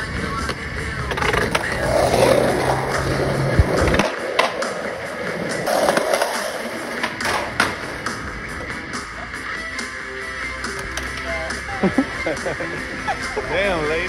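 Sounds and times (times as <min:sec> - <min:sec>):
skateboard clacking on ground: 0:00.0 - 0:08.8, 0:10.6 - 0:11.5
background music: 0:00.0 - 0:14.0
skateboard wheels rolling on asphalt: 0:00.0 - 0:14.0.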